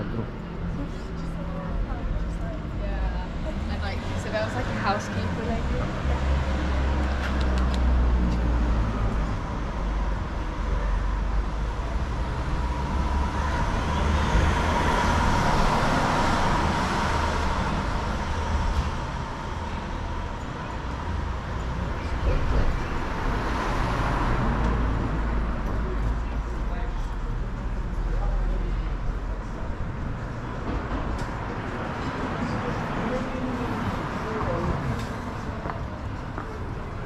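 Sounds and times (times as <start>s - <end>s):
constant low traffic rumble: 0.0s - 37.0s.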